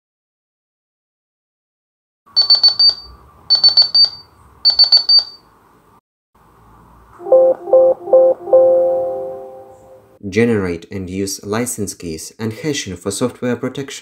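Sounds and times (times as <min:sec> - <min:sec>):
low tone: 0:07.2 - 0:10.2.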